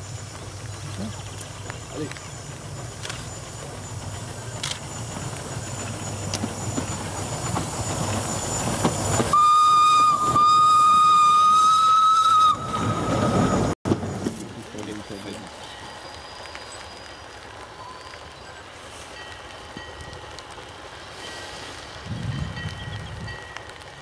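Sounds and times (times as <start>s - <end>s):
steam locomotive passing: 0.0s - 24.0s
steam whistle: 9.3s - 13.7s.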